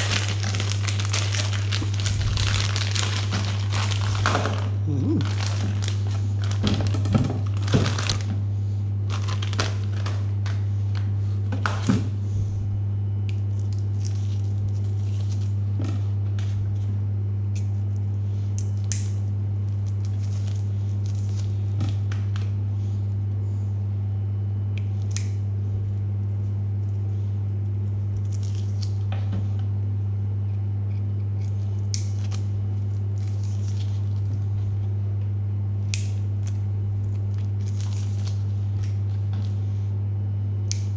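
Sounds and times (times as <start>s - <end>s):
plastic packaging crinkling: 0.0s - 8.3s, 9.0s - 10.6s, 36.4s - 39.2s
steady low hum: 0.0s - 40.9s.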